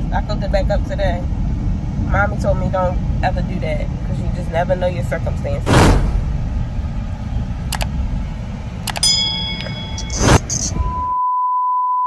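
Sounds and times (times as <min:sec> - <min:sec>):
car cabin road noise: 0:04.6 - 0:10.8
steady test-tone beep: 0:08.9 - 0:12.0.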